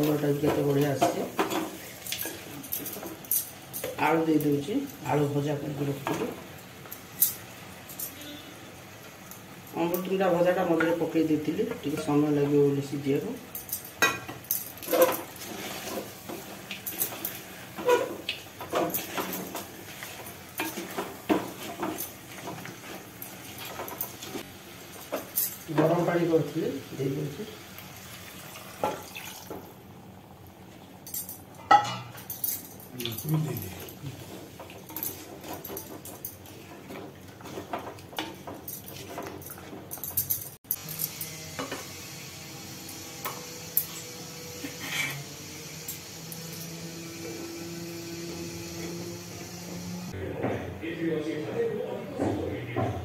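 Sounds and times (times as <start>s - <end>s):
liquid stirred: 33.7s - 40.0s.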